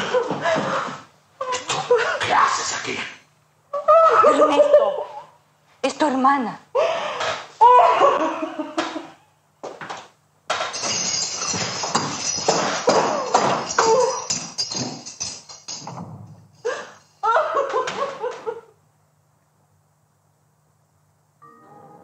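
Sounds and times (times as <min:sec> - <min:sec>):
people sobbing and gasping: 0:00.0 - 0:02.6, 0:06.8 - 0:09.4, 0:16.6 - 0:18.8
wailing cries: 0:07.6 - 0:08.5.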